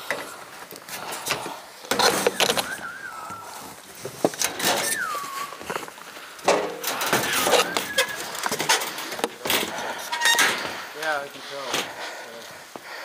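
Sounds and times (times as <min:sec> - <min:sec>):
high squeaks: 0:04.5 - 0:05.6, 0:07.0 - 0:09.1.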